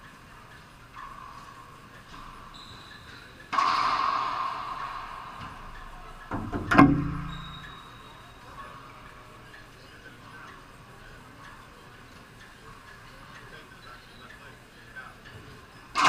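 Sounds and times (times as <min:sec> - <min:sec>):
ball hits echoing in court: 0:03.5 - 0:07.7.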